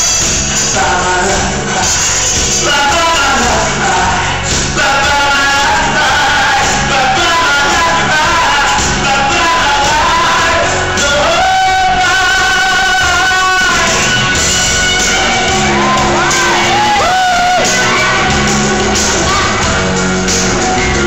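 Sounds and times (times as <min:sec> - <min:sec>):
person singing: 0:00.0 - 0:20.4
bass beat: 0:00.0 - 0:21.0
pop dance music: 0:00.0 - 0:21.0.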